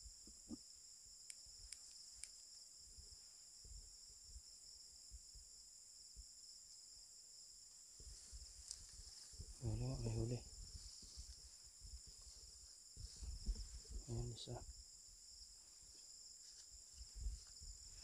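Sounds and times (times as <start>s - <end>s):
insects trilling: 0.0s - 18.0s
soft clicks: 1.3s - 2.5s.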